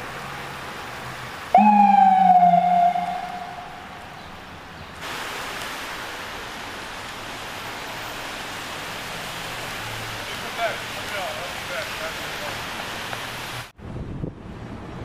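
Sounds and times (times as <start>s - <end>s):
rain on a wet street: 0.0s - 15.0s
siren falling tone: 1.6s - 4.2s.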